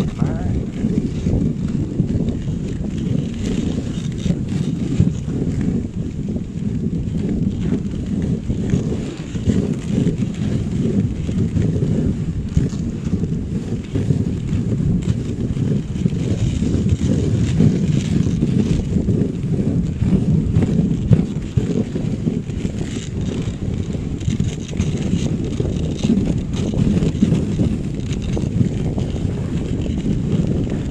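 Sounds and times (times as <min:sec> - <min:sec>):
sled runners on snow: 0:00.0 - 0:30.9
wind on microphone: 0:00.0 - 0:30.9.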